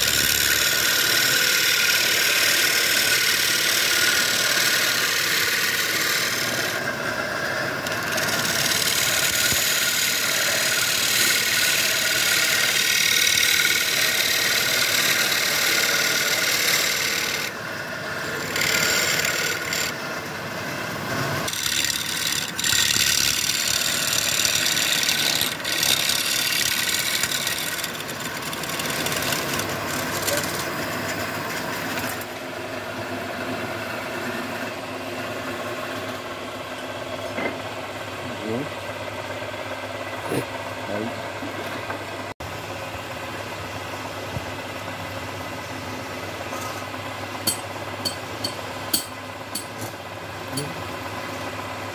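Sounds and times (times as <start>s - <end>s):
lathe scraper cutting wood: 0.0s - 36.2s.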